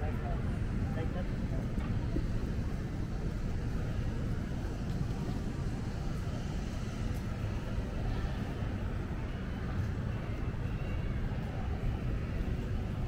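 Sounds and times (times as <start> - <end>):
city traffic rumble: 0.0 - 13.0.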